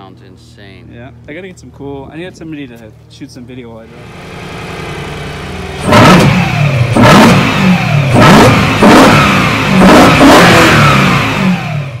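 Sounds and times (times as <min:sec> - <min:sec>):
engine revving in throttle blips: 0:03.9 - 0:12.0.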